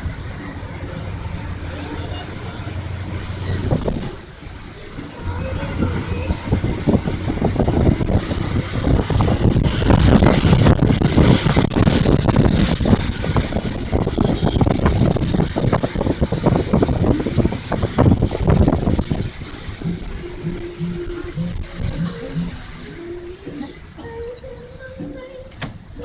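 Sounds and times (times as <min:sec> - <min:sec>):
wind buffeting microphone: 0:03.1 - 0:04.6, 0:05.2 - 0:22.6.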